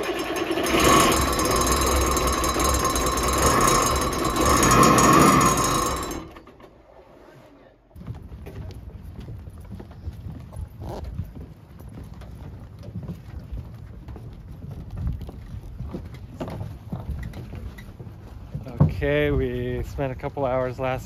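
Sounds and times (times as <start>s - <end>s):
diesel engine clatter: 0.0s - 6.8s.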